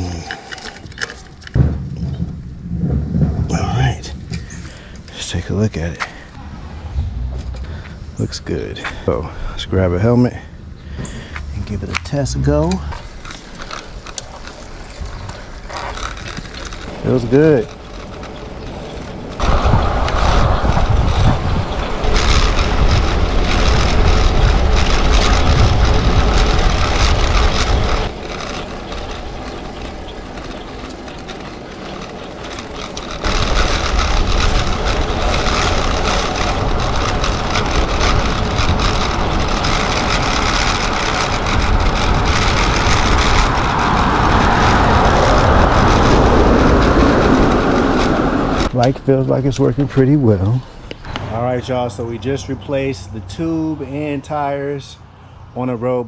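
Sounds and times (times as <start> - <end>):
wind buffeting microphone: 0.0 - 54.2
bike tyres rolling on asphalt: 0.0 - 56.0.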